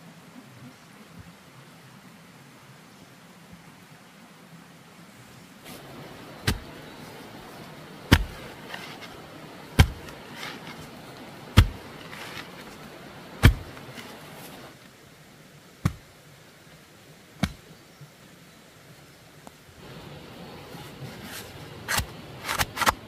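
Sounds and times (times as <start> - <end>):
faint scraping: 5.6 - 14.8, 20.5 - 23.0
hand tool striking: 6.4 - 6.8, 8.1 - 9.2, 9.8 - 10.8, 11.6 - 12.5, 13.4 - 14.2.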